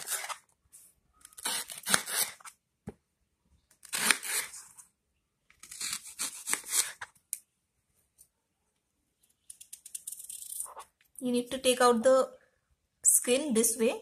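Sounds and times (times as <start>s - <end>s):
knife slicing through banana: 5.6s - 7.1s.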